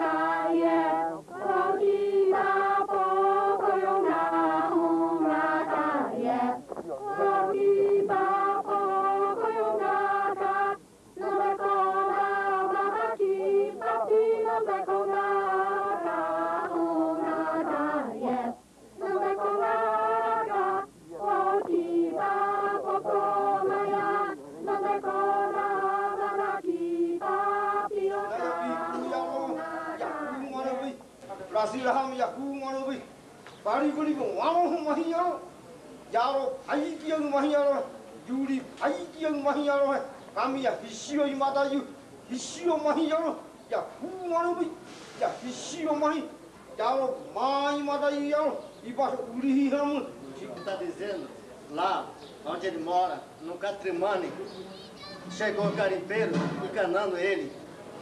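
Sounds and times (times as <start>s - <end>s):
voices chanting in unison: 0.0s - 33.1s.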